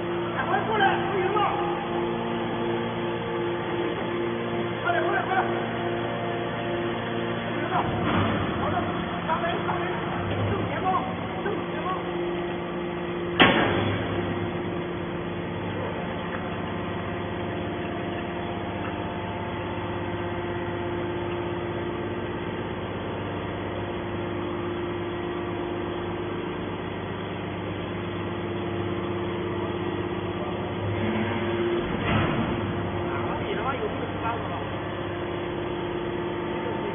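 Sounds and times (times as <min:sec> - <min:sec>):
hydraulic baler humming: 0:00.0 - 0:36.9
loud metallic bang: 0:13.4 - 0:14.2.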